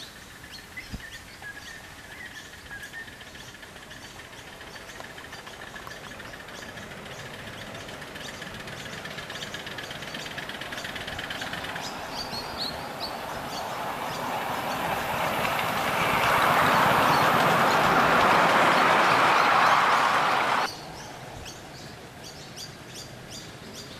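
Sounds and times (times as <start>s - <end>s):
model steam locomotive running: 2.8s - 20.7s.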